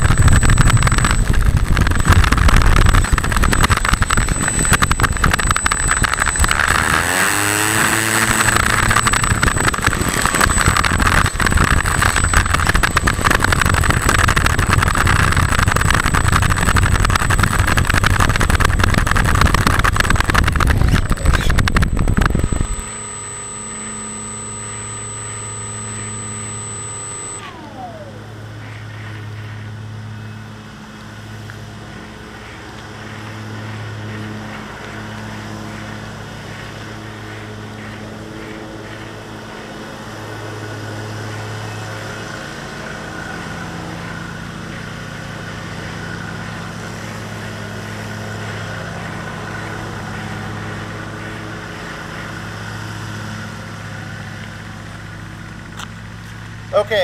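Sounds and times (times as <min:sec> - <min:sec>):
tone gliding downward: 0:00.0 - 0:29.3
electric motor and propeller rushing: 0:00.0 - 0:57.0.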